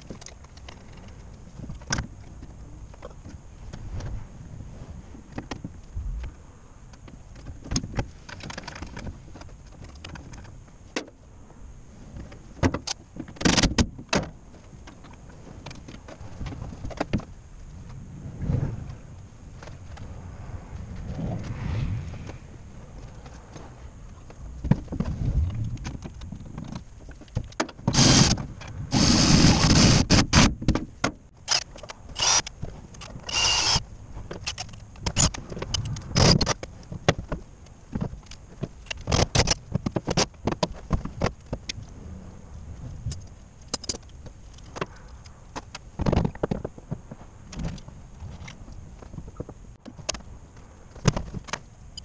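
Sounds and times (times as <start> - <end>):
metal parts clicking and knocking: 43.1 - 46.6.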